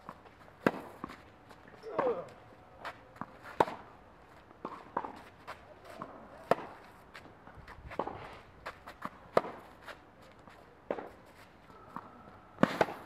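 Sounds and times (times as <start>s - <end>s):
footsteps on clay court: 0.0s - 12.1s
tennis ball struck by racket: 3.5s - 3.8s, 6.0s - 6.8s, 12.6s - 13.0s.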